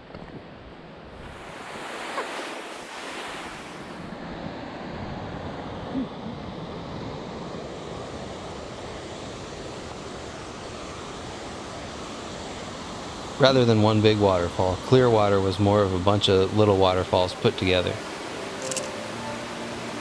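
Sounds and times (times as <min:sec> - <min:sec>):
waterfall rushing over rocks: 0:15.4 - 0:20.0.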